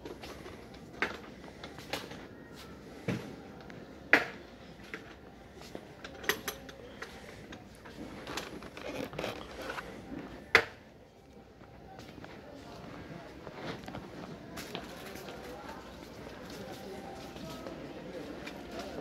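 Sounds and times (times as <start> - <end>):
soft rustling and clatter: 4.8 - 10.5, 11.6 - 19.0.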